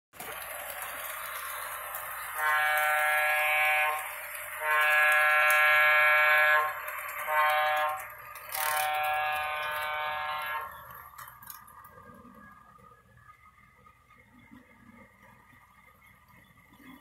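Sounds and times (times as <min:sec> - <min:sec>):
locomotive horn through small speaker: 0:02.3 - 0:10.8.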